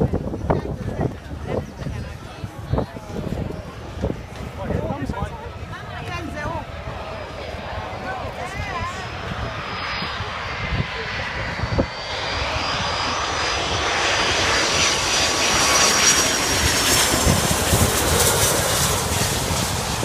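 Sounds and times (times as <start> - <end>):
jet engines roaring overhead: 0.0 - 20.0.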